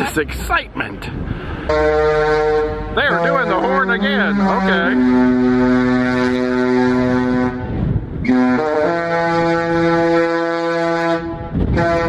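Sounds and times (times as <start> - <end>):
wind rumbling on microphone: 0.1 - 12.0
ship's horn playing a tune: 1.6 - 12.0.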